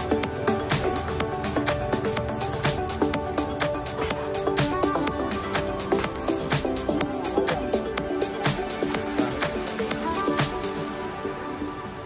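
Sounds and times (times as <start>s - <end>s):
background music with a beat: 0.0s - 12.0s.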